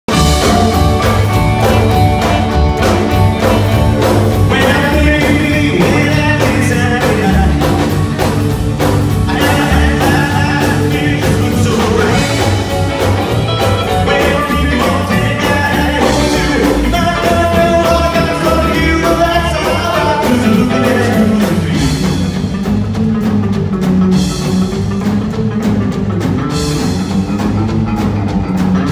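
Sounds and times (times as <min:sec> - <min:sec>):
drum kit: 0:00.0 - 0:28.9
electric guitar: 0:00.1 - 0:28.9
piano: 0:00.1 - 0:28.9
upright bass: 0:00.1 - 0:28.9.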